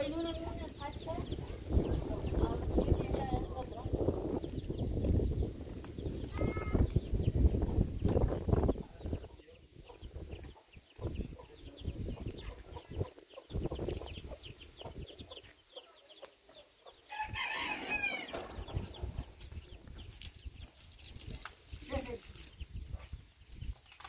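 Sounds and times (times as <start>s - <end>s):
small birds chirping: 0.0s - 24.0s
rooster crowing: 17.1s - 18.4s.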